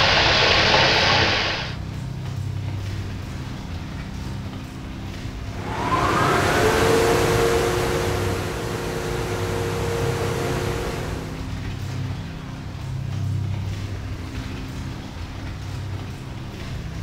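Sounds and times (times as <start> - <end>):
steady hum over low drone: 1.7 - 17.0
rushing whoosh: 5.4 - 11.7
short rising whistle: 5.5 - 11.6.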